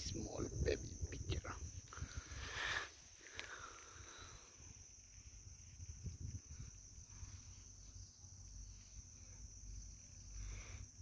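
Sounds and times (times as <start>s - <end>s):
high-pitched insect drone: 0.0s - 11.0s
low rumbles on microphone: 4.8s - 7.7s.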